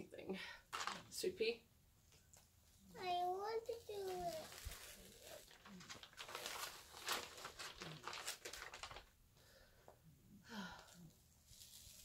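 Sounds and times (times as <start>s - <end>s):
canvas and plastic sheet crinkling: 0.7s - 1.1s, 3.0s - 9.2s, 11.4s - 12.0s.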